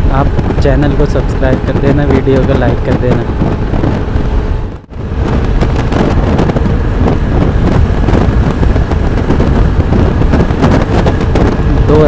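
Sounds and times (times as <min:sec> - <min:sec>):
scooter engine and road noise: 0:00.0 - 0:12.0
wind buffeting microphone: 0:00.0 - 0:12.0.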